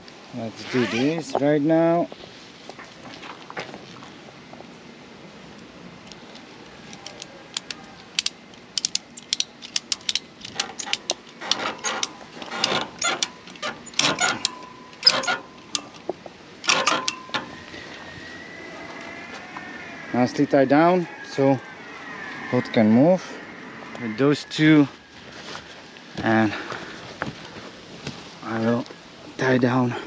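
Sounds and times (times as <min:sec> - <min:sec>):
ratchet strap clicking: 0:06.9 - 0:16.0.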